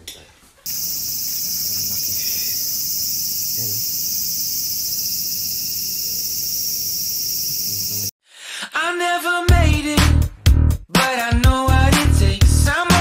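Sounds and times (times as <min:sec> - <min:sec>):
high-pitched insect chorus: 0:00.7 - 0:08.1.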